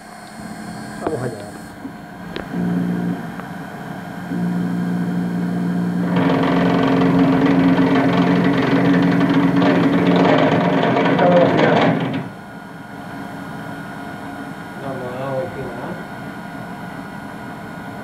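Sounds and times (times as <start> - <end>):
steady motor hum: 0.0 - 18.0
cutter milling into metal: 5.9 - 12.4.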